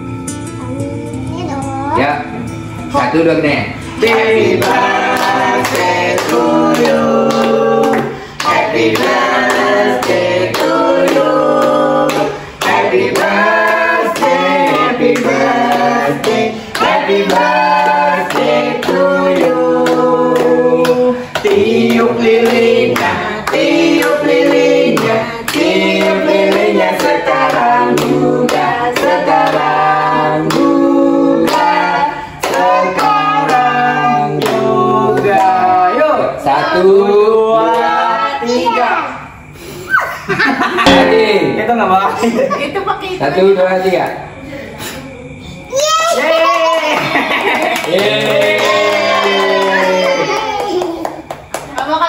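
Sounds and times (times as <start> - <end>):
group singing together: 2.4 - 39.7, 40.3 - 52.0
hands clapping: 46.8 - 51.9.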